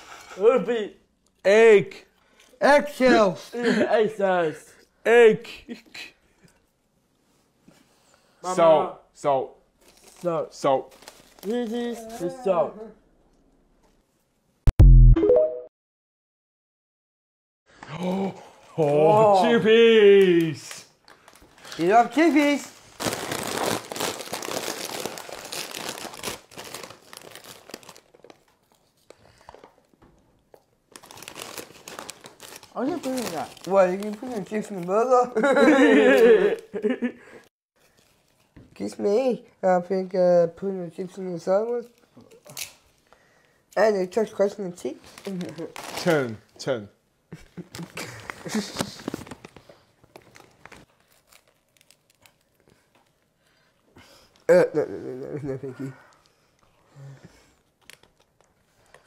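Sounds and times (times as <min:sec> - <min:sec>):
chip bag crinkling: 0:10.9 - 0:12.0, 0:21.2 - 0:28.8, 0:30.9 - 0:34.9, 0:45.1 - 0:46.3, 0:47.7 - 0:53.2.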